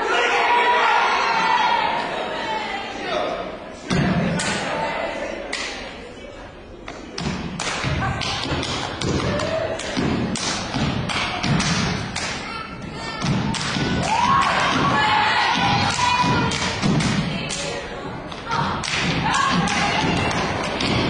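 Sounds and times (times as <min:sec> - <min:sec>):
people shouting: 0:00.0 - 0:03.4, 0:09.1 - 0:10.0, 0:12.4 - 0:21.0
hand claps and slaps: 0:06.9 - 0:12.4, 0:13.2 - 0:15.0, 0:15.6 - 0:17.7, 0:18.3 - 0:21.0
rhythmic stomps on stage floor: 0:07.2 - 0:12.4, 0:13.2 - 0:17.5, 0:18.4 - 0:21.0.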